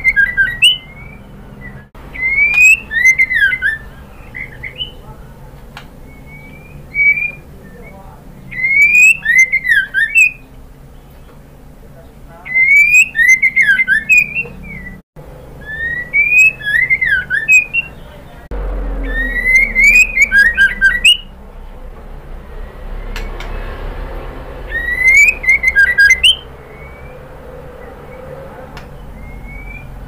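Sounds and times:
bird calling whistles and ticks: 0.0s - 5.0s, 5.8s - 11.4s, 12.5s - 15.0s, 15.6s - 18.1s, 19.1s - 21.3s, 24.7s - 30.0s
low steady hum: 13.4s - 30.0s.

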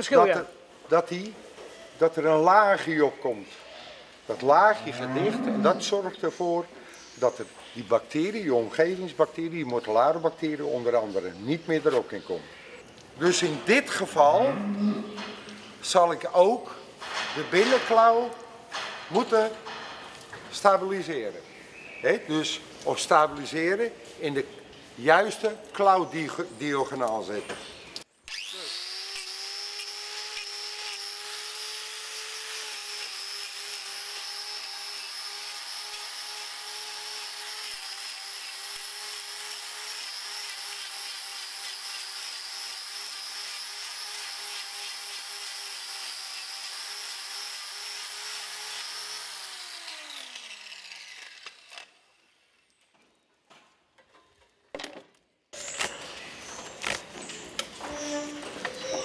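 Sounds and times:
angle grinder whining: 28.3s - 52.6s.

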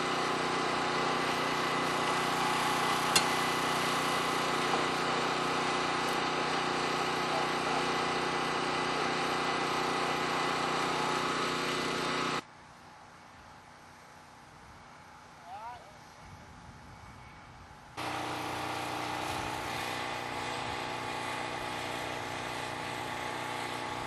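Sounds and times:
crane engine running: 0.0s - 12.4s, 18.0s - 24.0s.

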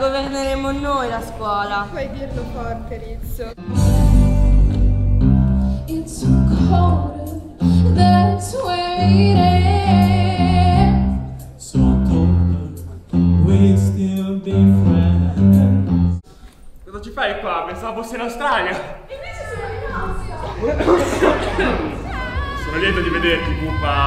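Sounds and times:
instrumental accompaniment: 3.6s - 16.2s
low bass notes: 3.6s - 16.2s
person singing: 21.0s - 24.0s.

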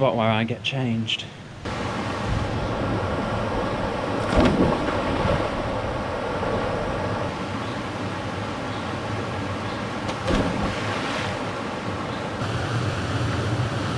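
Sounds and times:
person splashing into water: 4.2s - 5.6s, 10.1s - 11.4s.

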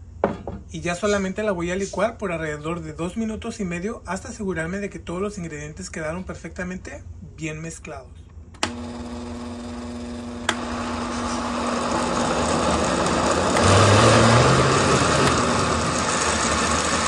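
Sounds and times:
click: 8.3s - 8.8s
blender motor churning batter: 8.6s - 17.0s.

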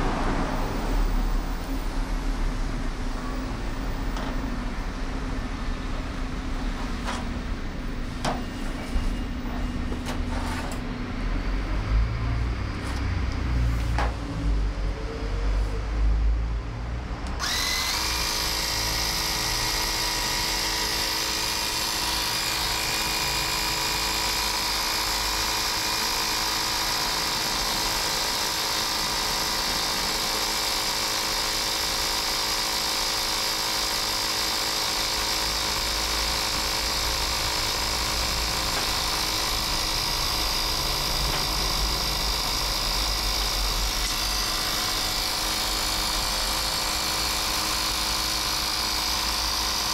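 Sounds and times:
mini compressor whining and hissing: 0.0s - 16.1s, 17.1s - 49.9s.

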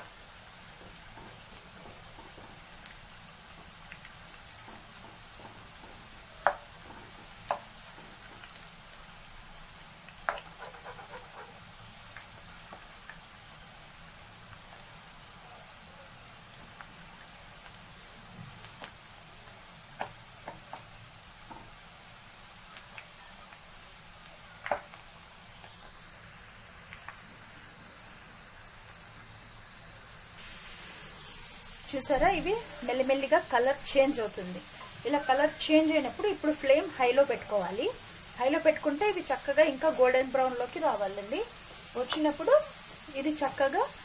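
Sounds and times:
potatoes sizzling in oil: 0.0s - 44.0s
faint crackles: 22.5s - 27.8s.

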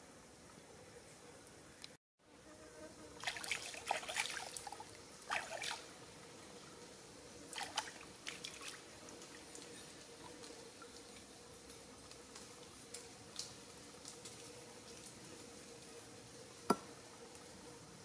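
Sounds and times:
water splashing and dripping: 3.2s - 5.9s, 7.5s - 15.7s.

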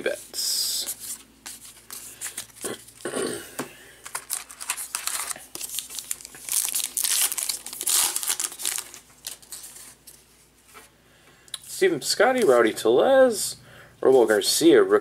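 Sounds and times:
wrapper tearing and crinkling: 4.1s - 9.9s.

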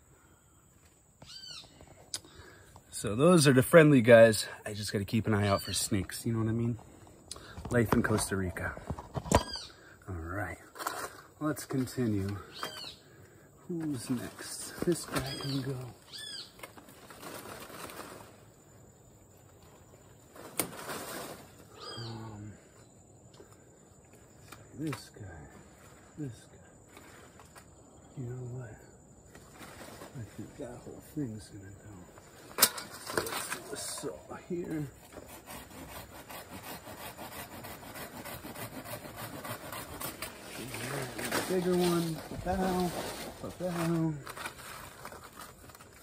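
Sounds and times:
leaves and branches rustling: 0.7s - 46.0s
hand saw cutting branch: 34.7s - 42.8s.

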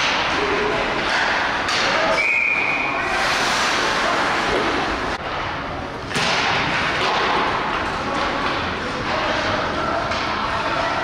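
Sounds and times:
echoing ice rink noise: 0.0s - 11.0s
referee's whistle: 2.2s - 2.9s.

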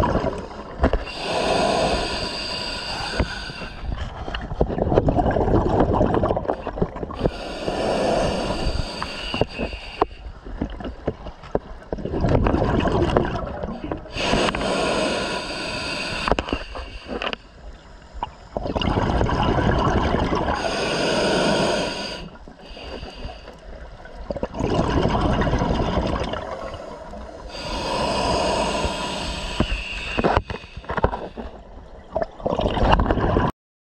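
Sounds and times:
exhaled bubbles gushing: 0.0s - 2.2s, 3.2s - 9.0s, 11.8s - 14.7s, 18.2s - 22.1s, 23.9s - 26.9s, 31.9s - 33.5s
regulator hissing inhale: 1.0s - 4.0s, 7.2s - 10.3s, 14.1s - 18.4s, 20.6s - 23.8s, 26.4s - 31.6s.

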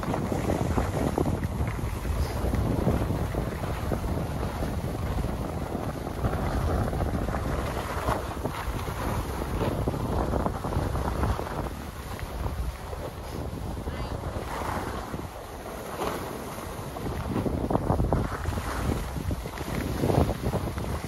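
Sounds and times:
skis sliding over snow: 0.0s - 21.0s
wind rushing over microphone: 0.0s - 21.0s.

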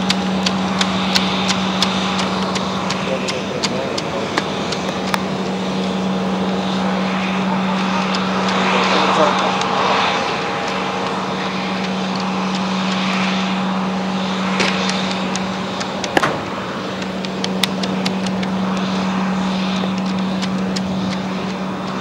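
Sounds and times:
sharp clicks: 0.0s - 5.3s, 14.5s - 16.4s, 17.0s - 18.9s, 19.8s - 22.0s
low machinery hum: 0.0s - 22.0s.

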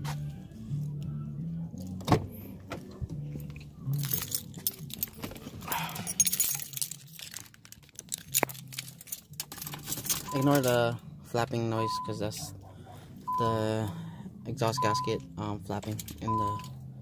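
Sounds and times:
background music: 0.0s - 17.0s
keys jangling: 3.8s - 10.8s, 15.8s - 16.8s
rustling and clatter: 4.0s - 10.3s.

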